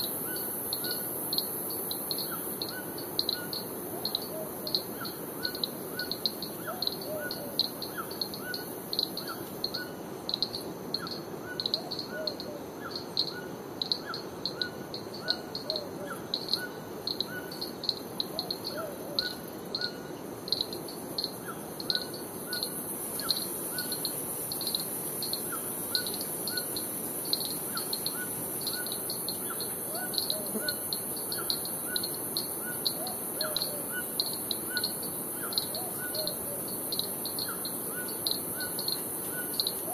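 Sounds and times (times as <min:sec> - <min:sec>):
high insect hiss: 0:00.0 - 0:39.9
lower slower chirping call: 0:11.0 - 0:39.9.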